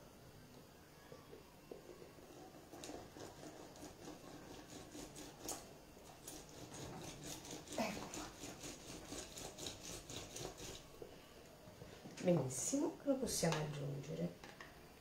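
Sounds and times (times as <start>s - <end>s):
lemon rubbing on citrus juicer: 1.8s - 10.9s.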